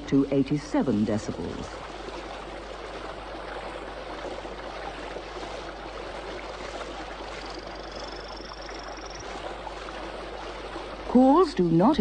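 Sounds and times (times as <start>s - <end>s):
stream rushing: 0.0s - 12.0s
frog trilled call: 7.4s - 9.3s.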